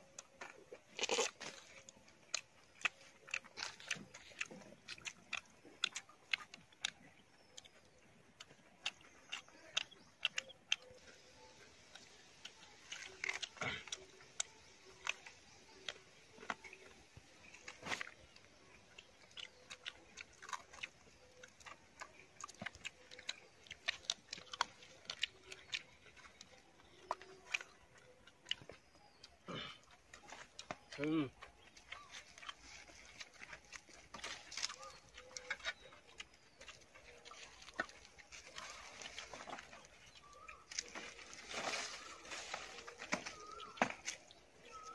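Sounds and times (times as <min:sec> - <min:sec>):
chewing with sharp crunches: 0:00.0 - 0:44.9
chicken being torn apart: 0:01.0 - 0:01.7.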